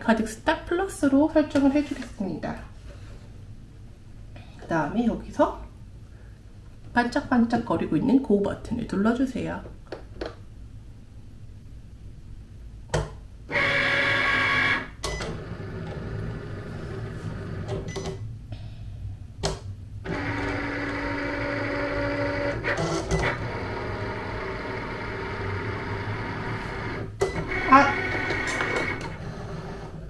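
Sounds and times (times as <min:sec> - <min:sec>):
stepper motors whining: 0:20.1 - 0:30.0.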